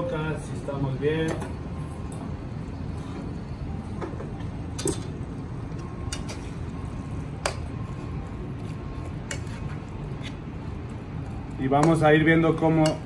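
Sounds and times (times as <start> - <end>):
spatula stirring food in a wok: 7.3 - 10.9
metal clinks on pan: 11.8 - 13.0.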